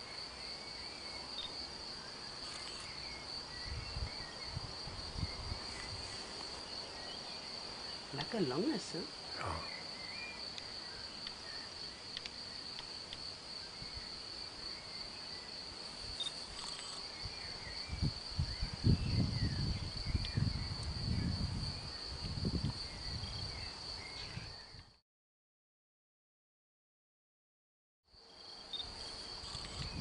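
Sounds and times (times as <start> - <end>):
insect trill: 0.0 - 25.0, 28.2 - 30.0
faint chirps: 8.1 - 11.8, 16.2 - 17.2.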